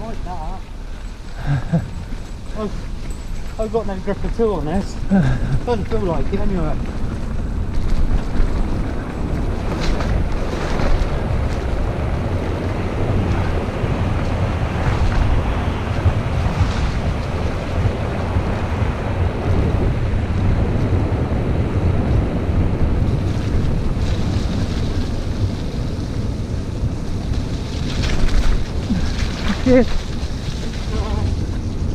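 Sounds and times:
tyres rolling on dirt trail: 0:00.0 - 0:31.9
wind buffeting microphone: 0:00.0 - 0:31.9
bike knocks and rattles: 0:05.7 - 0:18.9.

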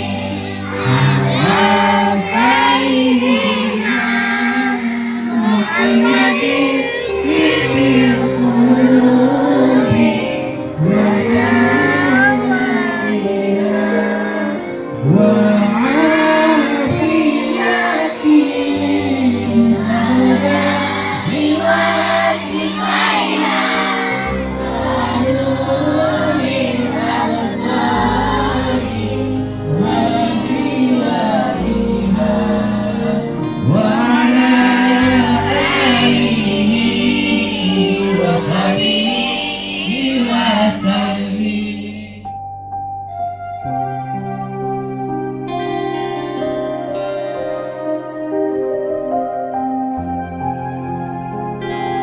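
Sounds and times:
group singing devotional song: 0:00.0 - 0:42.2
low backing notes: 0:00.0 - 0:52.0.

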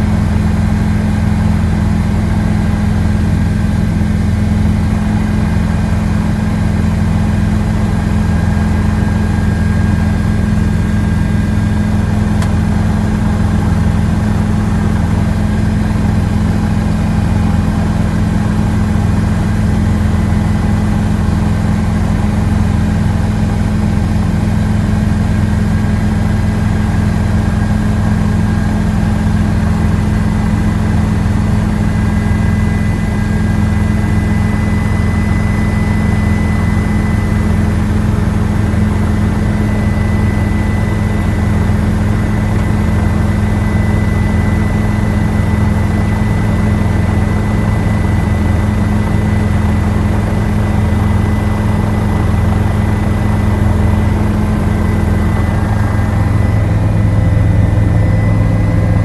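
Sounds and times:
helicopter rotor and engine drone: 0:00.0 - 0:59.0
thin high whine: 0:50.8 - 0:59.0.

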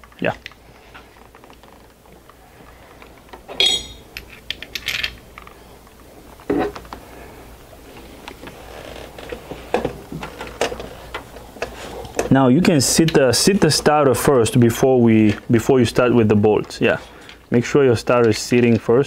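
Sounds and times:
metallic clinks and knocks: 0:03.5 - 0:05.2.

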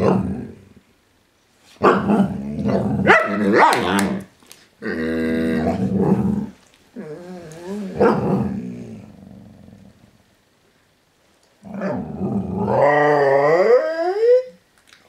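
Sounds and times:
dog growling: 0:01.8 - 0:10.2, 0:11.6 - 0:14.0.

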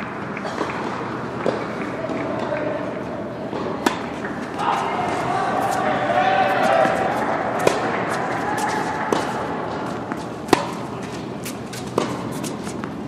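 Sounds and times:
tennis ball racket hits: 0:03.5 - 0:13.0.

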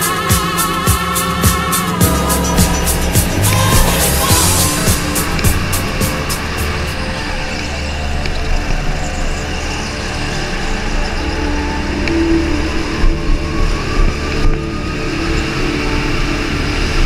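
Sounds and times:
go-kart engine running: 0:00.0 - 0:08.7.

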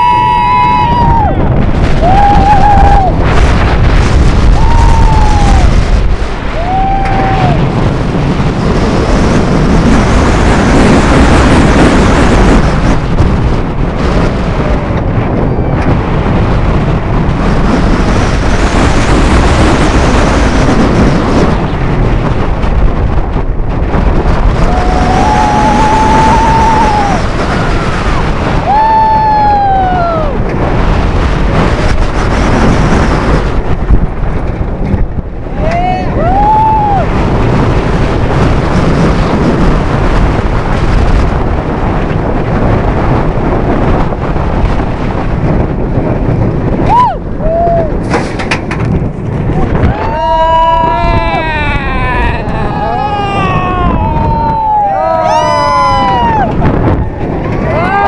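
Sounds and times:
riders screaming: 0:00.0 - 0:03.2, 0:04.5 - 0:05.8, 0:06.5 - 0:07.7, 0:24.5 - 0:30.4, 0:35.5 - 0:37.2, 0:49.8 - 0:56.7, 0:57.6 - 0:58.0
roller coaster train rumble: 0:00.0 - 0:58.0
wind rushing over microphone: 0:00.0 - 0:58.0.

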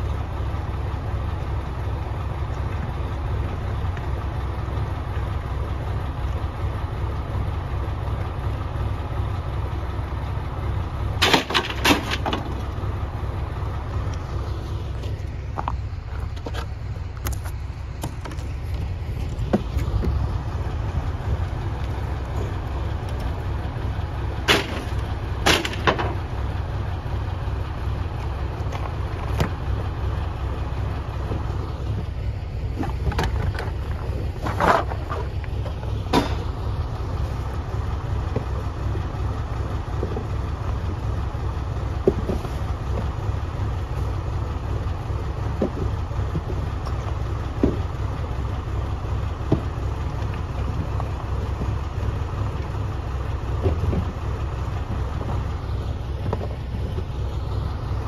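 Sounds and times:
diesel engine idling: 0:00.0 - 0:58.0
knocks and clatters of trash: 0:11.2 - 0:12.8, 0:15.0 - 0:20.3, 0:24.4 - 0:26.4, 0:32.7 - 0:36.8, 0:39.6 - 0:41.2, 0:41.8 - 0:43.4, 0:44.0 - 0:48.4, 0:49.2 - 0:52.8, 0:53.4 - 0:55.5, 0:56.1 - 0:57.6.

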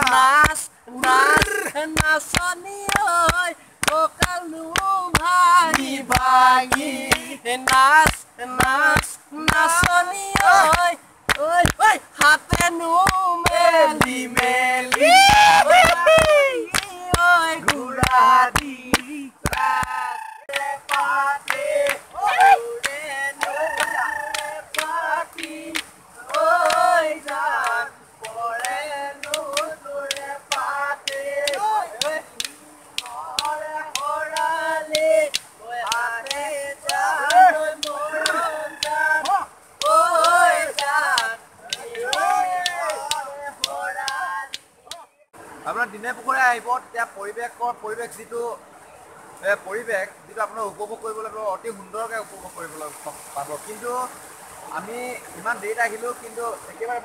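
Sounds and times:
group singing: 0:00.0 - 0:45.0
hand claps: 0:00.0 - 0:45.1.

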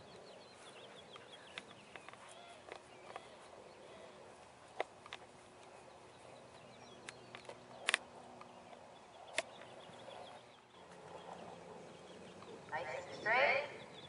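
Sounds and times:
faint bird chirping: 0:00.0 - 0:04.5, 0:05.4 - 0:14.0
sharp clicks: 0:09.3 - 0:09.7.

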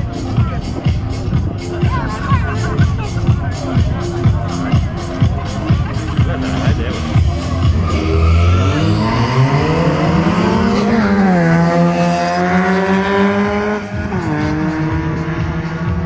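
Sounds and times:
race car engine accelerating: 0:05.6 - 0:16.0.

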